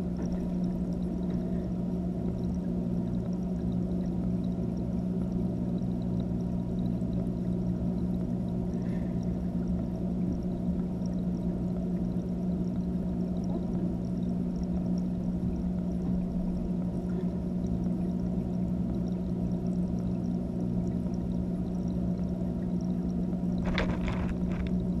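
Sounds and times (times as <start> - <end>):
aquarium equipment hum underwater: 0.0 - 25.0
camera knocks: 23.6 - 24.7.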